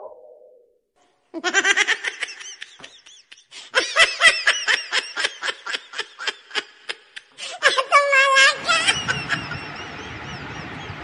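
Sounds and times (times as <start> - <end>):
high-pitched giggling laughter: 1.4 - 10.6.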